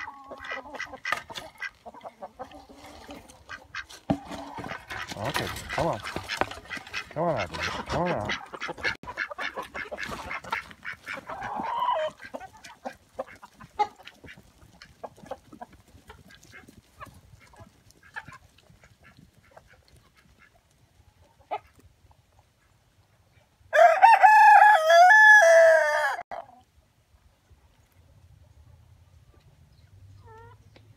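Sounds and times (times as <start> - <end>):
chickens clucking: 0.0 - 23.9, 26.3 - 30.9
rooster crowing: 23.7 - 26.2.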